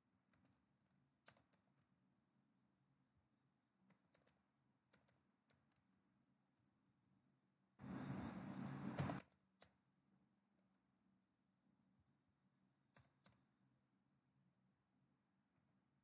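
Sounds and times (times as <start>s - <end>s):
keyboard typing: 3.9s - 5.9s, 7.8s - 9.8s.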